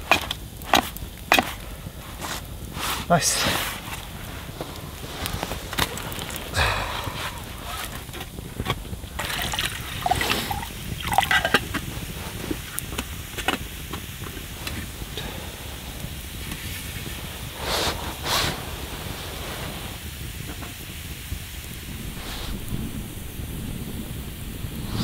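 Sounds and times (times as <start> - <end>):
campfire crackling: 0.0 - 25.0
water sloshing in metal pot: 9.2 - 11.8.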